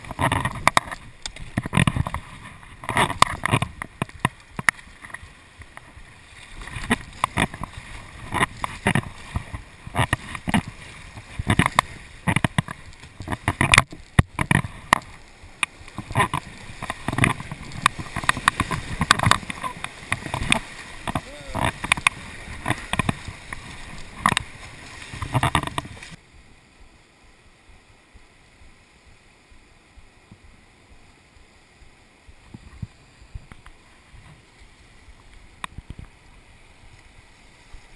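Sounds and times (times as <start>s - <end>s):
paddle splashing in water: 0.0s - 26.2s
water sloshing against hull: 0.0s - 26.2s
white water rushing: 0.0s - 37.9s.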